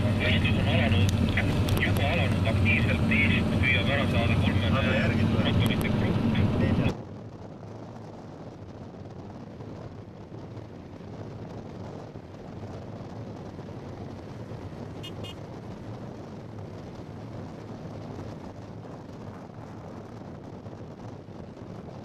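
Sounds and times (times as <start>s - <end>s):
distant motor vehicles: 0.0s - 7.4s
wind: 0.0s - 22.0s.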